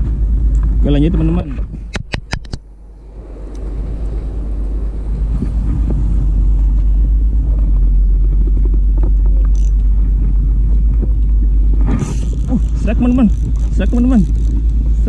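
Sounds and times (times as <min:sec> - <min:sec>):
wind buffeting microphone: 0:00.0 - 0:15.0
faint clicks: 0:12.0 - 0:14.8.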